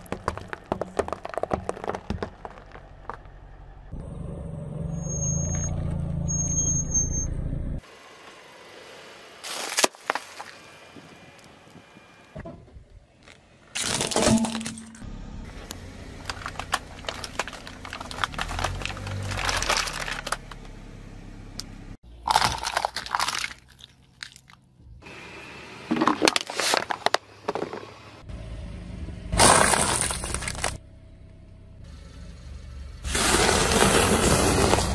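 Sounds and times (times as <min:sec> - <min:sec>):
plastic cracking and crunching: 0:16.2 - 0:20.5, 0:22.3 - 0:24.6.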